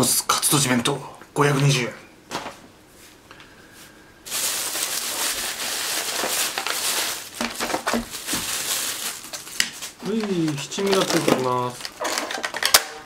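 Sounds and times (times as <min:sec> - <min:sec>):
plastic bag rustling: 0:04.2 - 0:12.7.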